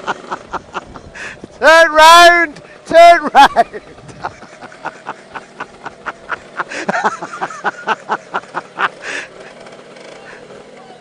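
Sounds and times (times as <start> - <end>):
man laughing: 0.0 - 1.4, 2.9 - 9.6.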